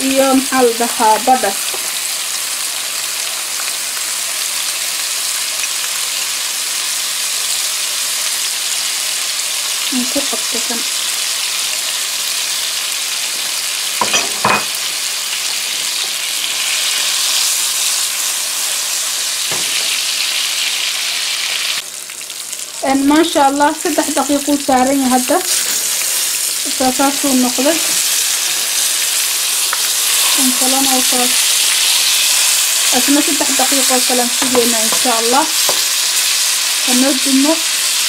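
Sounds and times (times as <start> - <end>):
steaks sizzling in a frying pan: 0.0 - 38.0.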